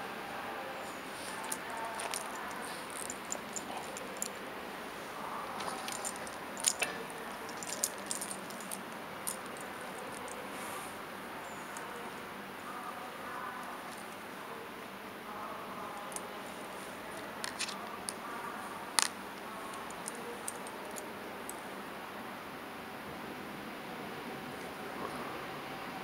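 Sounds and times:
rail yard ambience: 0.0 - 26.0
small sharp clicks and rattles: 1.2 - 4.4, 5.6 - 10.4, 19.0 - 21.6.

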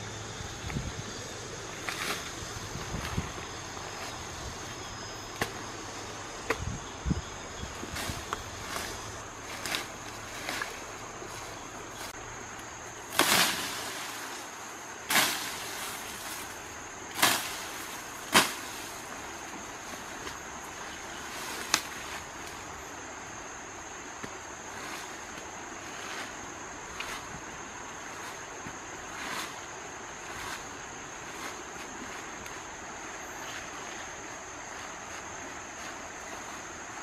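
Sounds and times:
high-pitched insect drone: 0.0 - 19.6
hands scraping soil and leaves: 1.6 - 22.7, 24.2 - 37.0.

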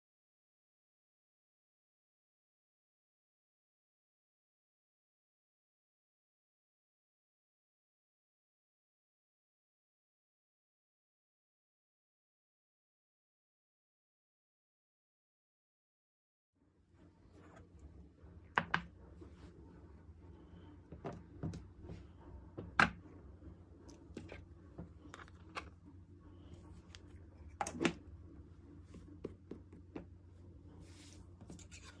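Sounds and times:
low steady hum: 16.6 - 32.0.

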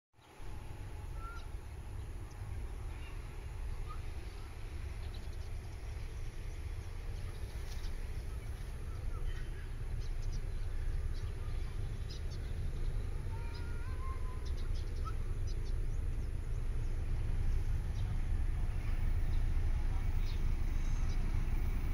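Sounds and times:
bird chirps: 1.1 - 3.2, 7.2 - 16.9
rising whistles: 3.8 - 4.6.

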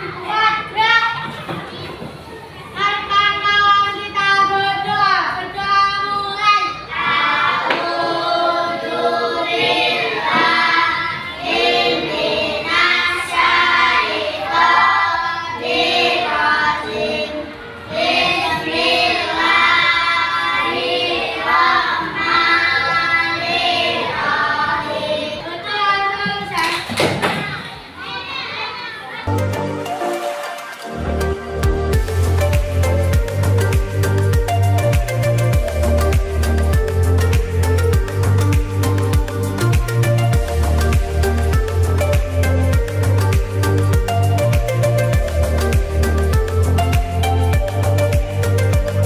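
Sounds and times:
children singing in unison: 6.6 - 25.7.

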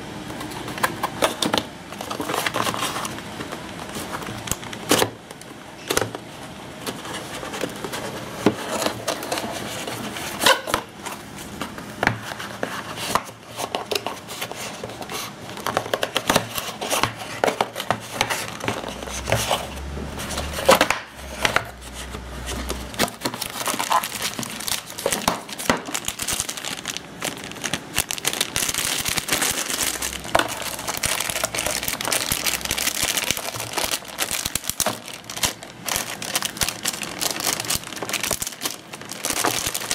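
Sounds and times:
plastic bag crinkling: 1.3 - 5.0, 12.5 - 39.9.

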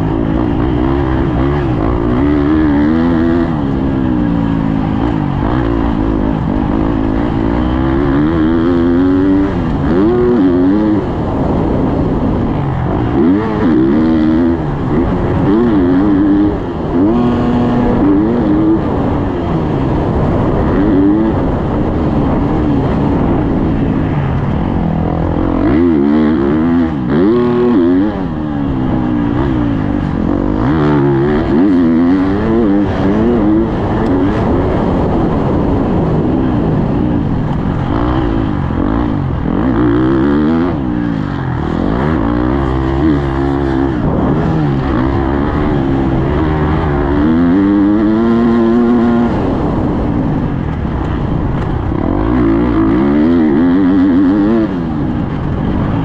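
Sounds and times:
motocross bike engine revving: 0.0 - 56.0.

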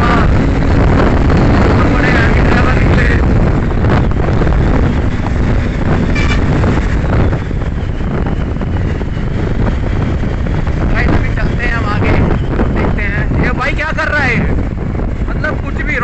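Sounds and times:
motorcycle riding at speed: 0.0 - 16.0
wind rushing over microphone: 0.0 - 16.0
brief high tone: 6.2 - 6.4.

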